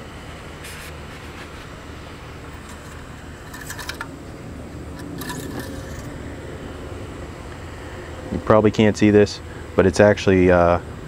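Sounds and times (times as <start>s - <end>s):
steady low hum: 0.0s - 11.0s
dipstick clicking and scraping: 2.6s - 4.1s, 5.0s - 6.1s.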